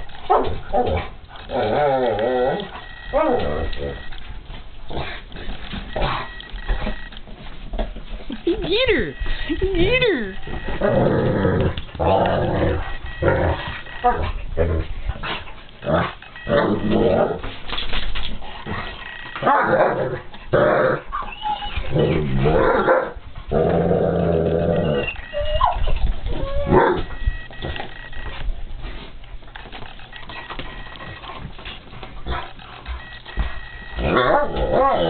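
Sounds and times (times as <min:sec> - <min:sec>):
dogs growling: 0:00.0 - 0:04.1, 0:10.4 - 0:17.5, 0:18.4 - 0:25.6, 0:30.2 - 0:35.0
dog whining: 0:00.7 - 0:04.1, 0:21.0 - 0:22.8, 0:24.2 - 0:28.2, 0:32.4 - 0:35.0.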